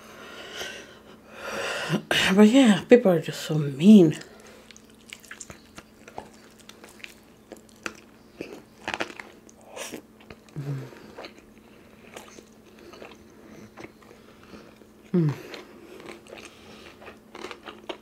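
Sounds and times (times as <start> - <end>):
chewing crispy fried chicken: 4.1 - 18.0.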